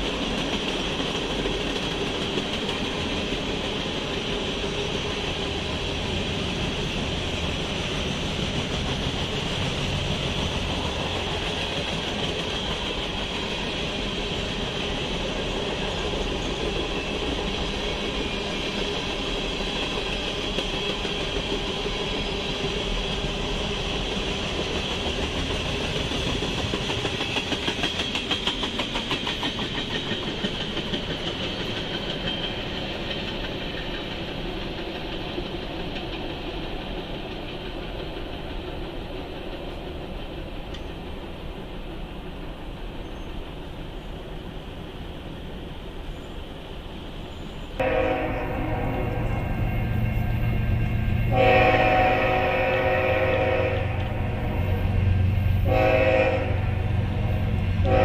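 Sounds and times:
rhythmic clickety-clack: 0.0s - 41.1s
train wheels on rail: 0.0s - 58.0s.

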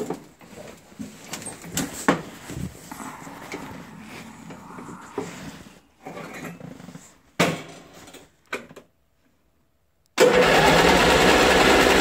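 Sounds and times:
lawn tractor engine starting and running: 10.2s - 12.0s.

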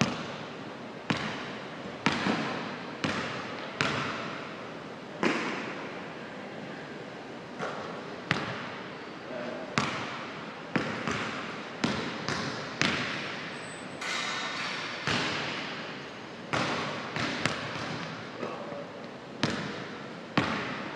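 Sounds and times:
basketballs bouncing on hardwood: 1.1s - 4.2s, 10.8s - 13.5s, 15.0s - 15.7s, 16.5s - 18.2s, 19.4s - 20.9s.

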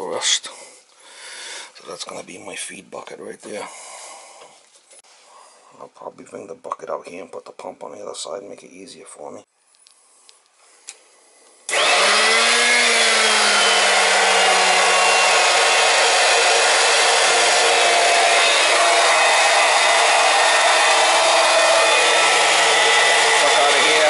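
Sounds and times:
electric pump motor hum: 11.7s - 24.0s.

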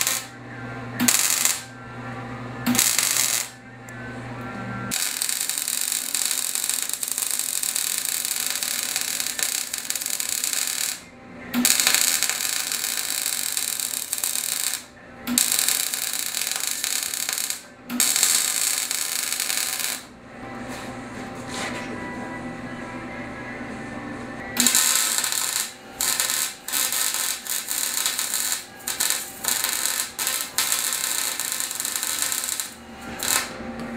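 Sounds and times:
arc welding crackling hiss: 0.0s - 0.3s, 1.0s - 1.7s, 2.7s - 3.5s, 4.9s - 11.0s, 11.6s - 20.1s, 24.6s - 33.6s.

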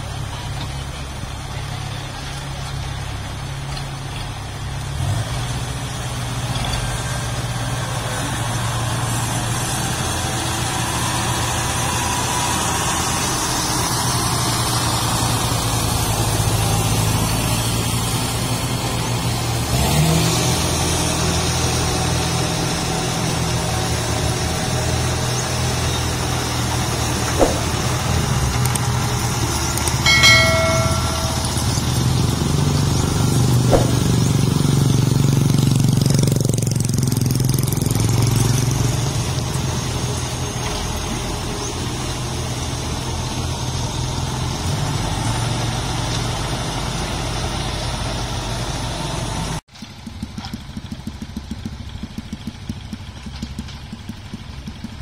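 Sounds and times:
diesel engines running: 0.0s - 55.0s
sharp knocks: 27.2s - 28.1s, 30.1s - 32.2s, 33.6s - 34.6s.

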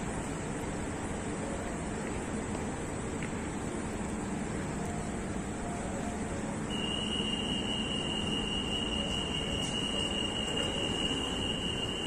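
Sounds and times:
metro train humming: 0.0s - 12.0s
high-pitched door warning tone: 5.6s - 12.0s.

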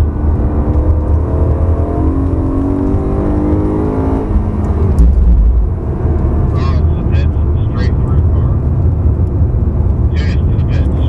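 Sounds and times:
car engine revving at full throttle: 0.0s - 11.0s.

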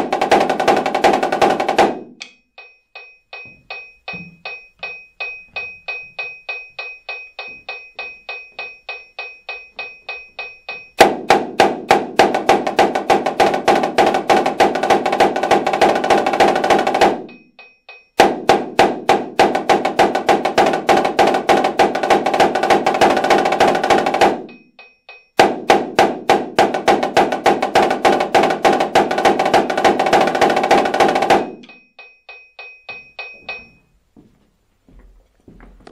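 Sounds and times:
metronome clicking: 2.2s - 11.0s, 31.5s - 33.8s.

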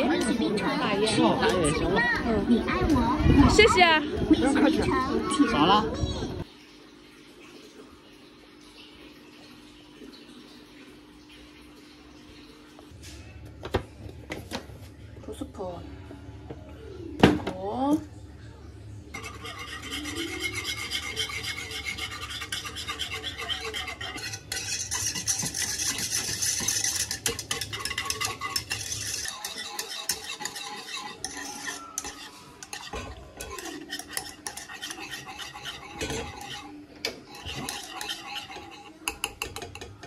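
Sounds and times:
whisk scraping saucepan: 19.1s - 40.0s.

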